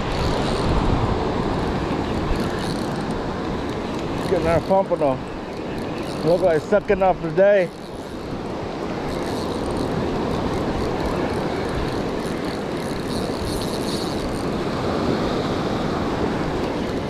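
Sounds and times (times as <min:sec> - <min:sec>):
wind on microphone: 0:00.0 - 0:06.9.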